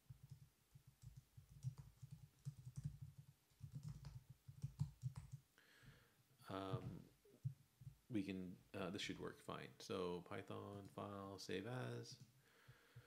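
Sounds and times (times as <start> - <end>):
faint keyboard typing: 0.0 - 5.4.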